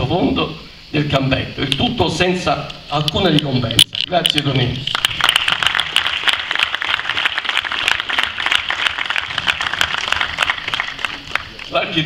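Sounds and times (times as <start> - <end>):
crowd applauding: 4.9 - 12.0.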